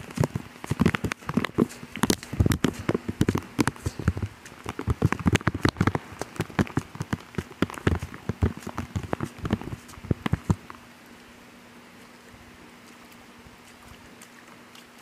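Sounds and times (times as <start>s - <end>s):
bare footsteps on wet grass: 0.0s - 10.7s.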